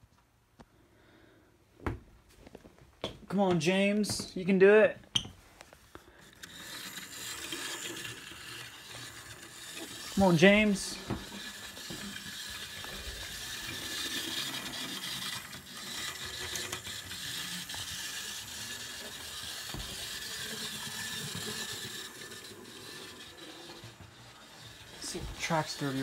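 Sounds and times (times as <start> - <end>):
model train motor whirring: 5.8 - 26.0.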